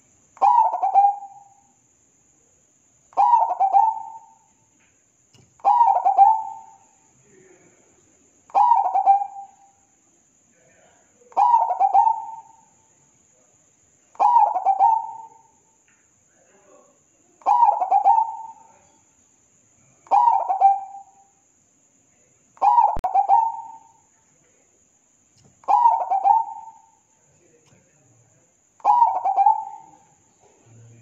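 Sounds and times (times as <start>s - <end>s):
dove cooing: 0.0s - 1.5s, 3.1s - 4.4s, 5.6s - 6.8s, 8.5s - 9.5s, 11.4s - 12.6s, 14.2s - 15.5s, 17.4s - 18.8s, 20.1s - 21.2s, 22.6s - 24.0s, 25.6s - 27.0s, 28.8s - 31.0s.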